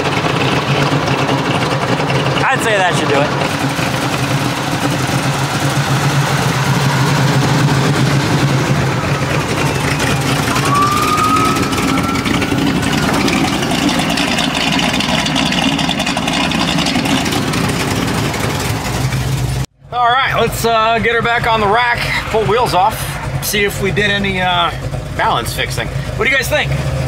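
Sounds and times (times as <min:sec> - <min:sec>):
car engine idling: 0:00.0 - 0:27.0
rising whistle: 0:05.8 - 0:15.0.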